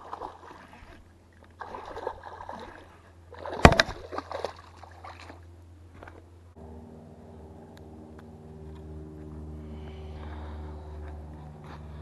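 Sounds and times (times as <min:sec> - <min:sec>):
fish splashing at water surface: 0:00.0 - 0:05.4.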